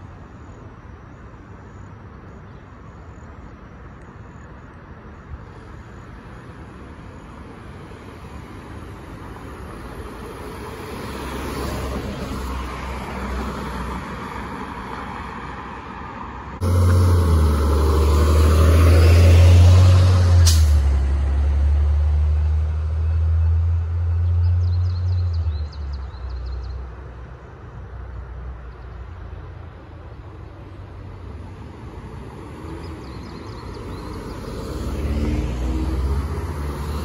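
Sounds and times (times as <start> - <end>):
passing cars: 0.0 - 37.0
street traffic: 0.0 - 37.0
heavy engine droning: 16.6 - 24.7.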